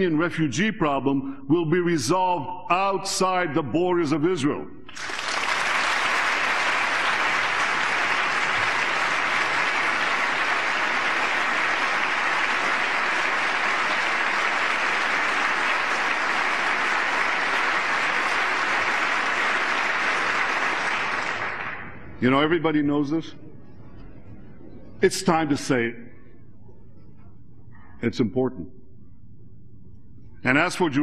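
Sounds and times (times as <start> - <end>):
large audience applauding: 4.9 - 22.0.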